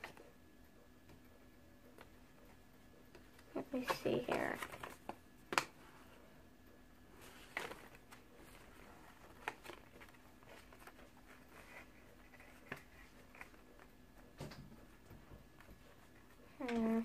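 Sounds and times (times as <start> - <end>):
packet and paper rustling: 7.2 - 13.6.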